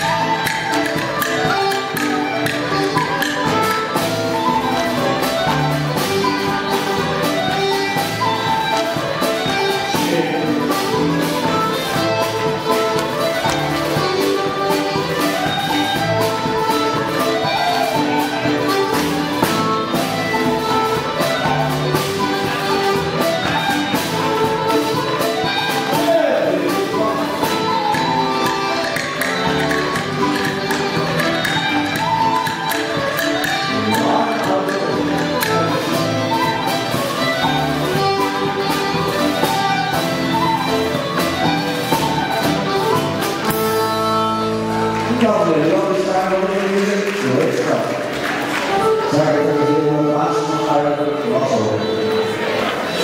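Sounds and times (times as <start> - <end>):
fiddle: 0.0 - 53.0
traditional dance band music: 0.0 - 53.0.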